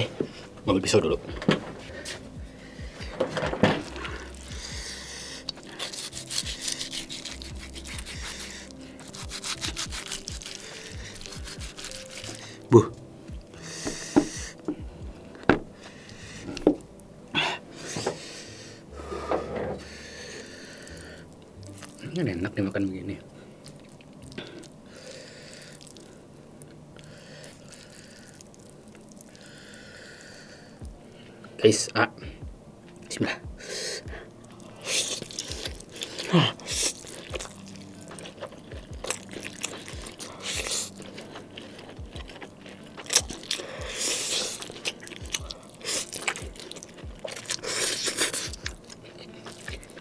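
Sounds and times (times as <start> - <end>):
background music with deep bass: 0.0 - 27.1, 29.1 - 50.0
sticky noodles being stirred: 3.8 - 13.1, 34.2 - 50.0
knife sawing through steak: 4.6 - 12.7.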